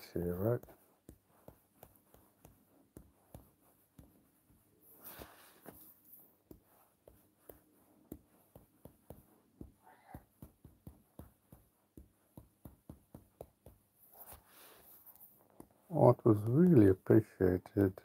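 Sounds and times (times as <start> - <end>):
taps on a touchscreen: 6.5 - 13.8.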